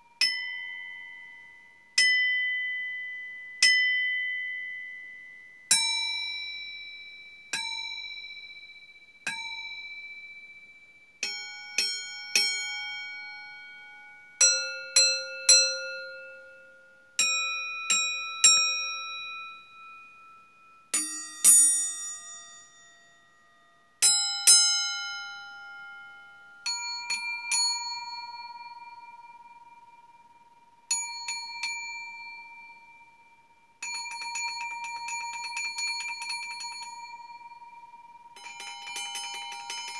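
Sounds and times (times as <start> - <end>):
metal singing bowls ringing: 33.8 - 39.9.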